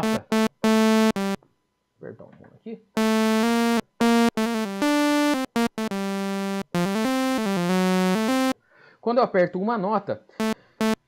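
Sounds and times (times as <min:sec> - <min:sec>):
sawtooth synthesizer notes: 0:00.0 - 0:01.4, 0:03.0 - 0:08.6, 0:10.4 - 0:11.0.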